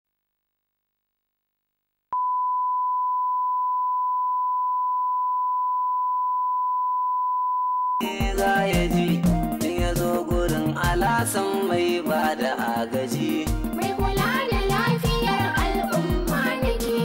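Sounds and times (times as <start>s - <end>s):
music with steady beat: 8.0s - 17.0s.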